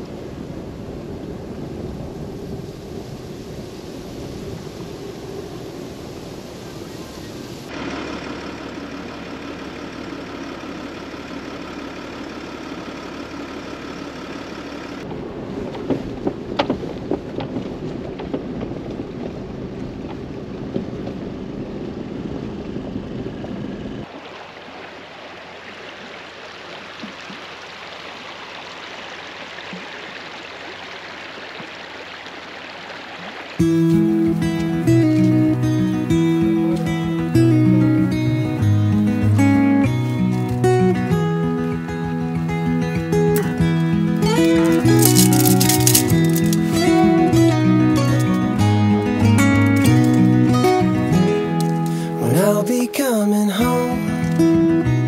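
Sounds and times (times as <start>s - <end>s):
vehicle road noise: 0.0s - 55.0s
knocks and rattles: 44.2s - 46.9s.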